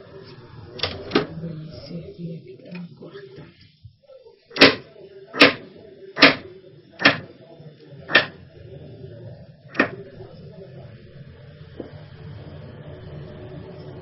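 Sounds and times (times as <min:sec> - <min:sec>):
knife chopping on cutting board: 0:04.6 - 0:04.8, 0:06.2 - 0:06.4, 0:07.0 - 0:07.3, 0:08.1 - 0:08.4.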